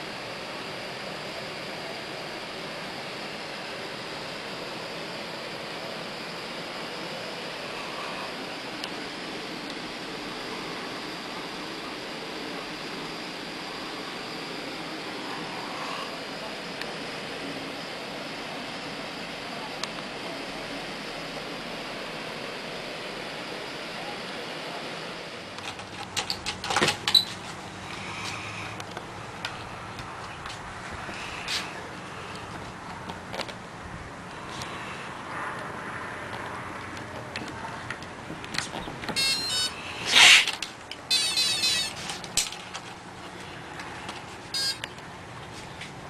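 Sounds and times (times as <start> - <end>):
steady background hiss: 0.0 - 46.0
clicks and knocks of handling: 25.6 - 27.3
electronic beeps and tones: 39.2 - 39.8, 41.1 - 42.0, 44.6 - 44.9.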